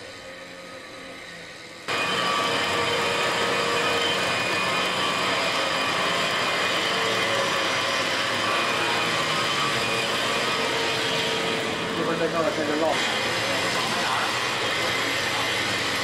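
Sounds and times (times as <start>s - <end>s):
power drill whirring: 0.0s - 16.0s.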